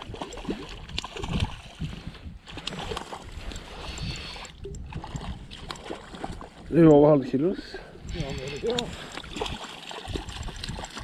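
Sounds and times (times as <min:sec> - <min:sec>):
wind buffeting microphone: 0:00.0 - 0:11.0
fish splashing at water surface: 0:08.3 - 0:11.0.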